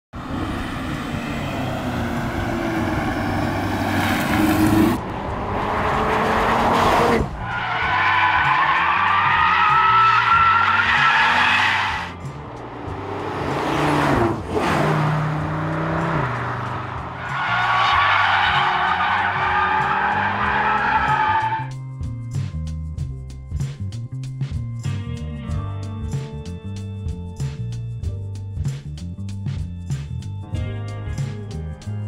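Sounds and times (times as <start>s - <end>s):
car engine revving hard: 0.2s - 7.6s, 8.2s - 21.5s
tyres squealing: 7.4s - 12.1s, 17.2s - 21.7s.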